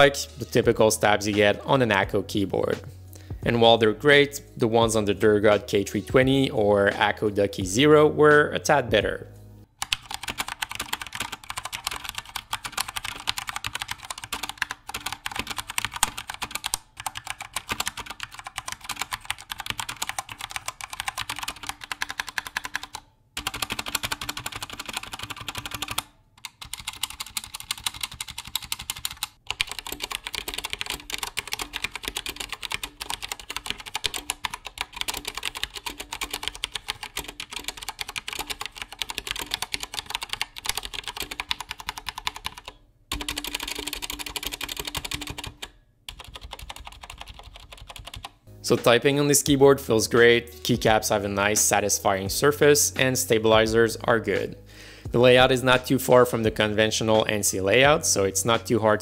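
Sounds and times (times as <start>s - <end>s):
mechanical keyboard typing: 9.8s - 48.4s.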